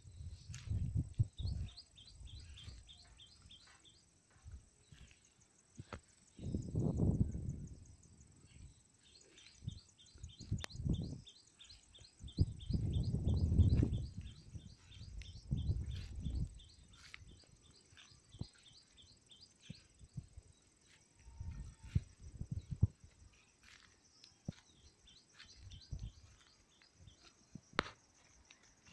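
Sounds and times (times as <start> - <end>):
wind buffeting microphone: 0.0 - 3.6, 6.4 - 8.0, 9.6 - 20.6, 21.4 - 23.2, 25.3 - 26.4
bird chirping: 0.1 - 28.9.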